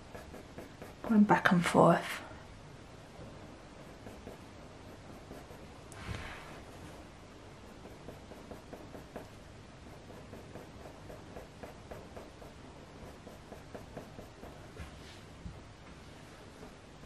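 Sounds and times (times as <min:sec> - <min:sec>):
pencil scratching on paper: 0:00.0 - 0:01.2, 0:03.8 - 0:07.0, 0:07.6 - 0:14.8.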